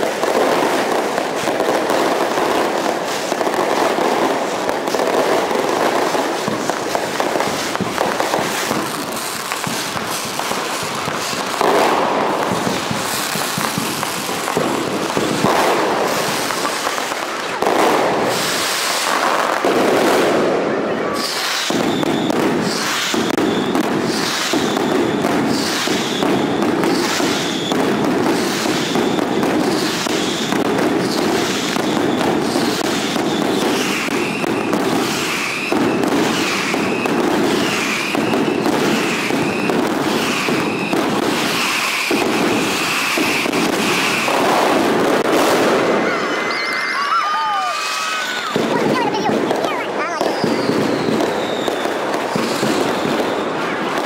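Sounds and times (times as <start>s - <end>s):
firecrackers barrage: 0.0s - 54.0s
short whistles: 50.2s - 51.9s.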